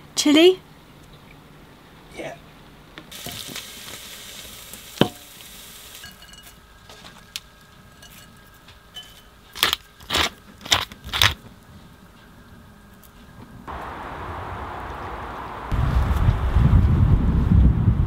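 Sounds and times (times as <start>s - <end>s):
frying sizzle: 3.1s - 8.9s
clink of a pot or dish: 6.0s - 6.6s, 9.0s - 9.3s.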